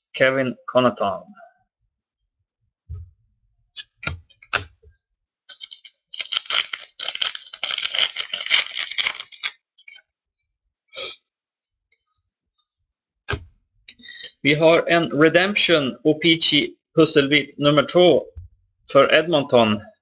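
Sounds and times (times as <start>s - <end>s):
wrapper crinkling and tearing: 5.5s - 10.0s
wrapper rustle: 5.5s - 10.0s.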